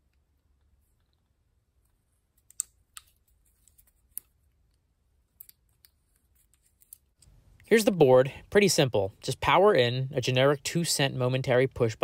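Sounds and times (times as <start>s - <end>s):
clicks and taps of small parts: 2.4s - 4.8s.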